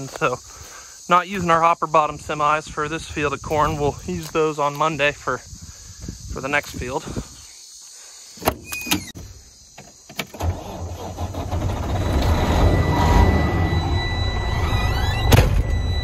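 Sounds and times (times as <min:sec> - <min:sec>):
diesel engine starting and rumbling: 0:10.3 - 0:16.0
thin high tone: 0:11.8 - 0:16.0
truck door clanking: 0:14.6 - 0:16.0.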